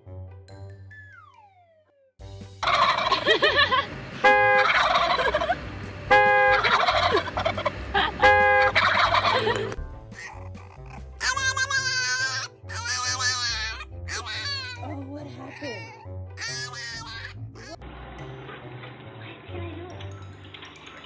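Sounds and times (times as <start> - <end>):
turkeys gobbling: 2.6 - 3.6, 4.5 - 5.6, 6.2 - 9.8.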